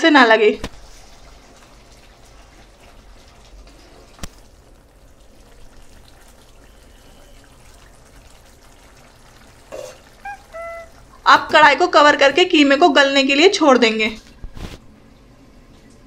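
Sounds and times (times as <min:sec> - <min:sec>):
food bubbling in a pan: 0:00.6 - 0:12.2.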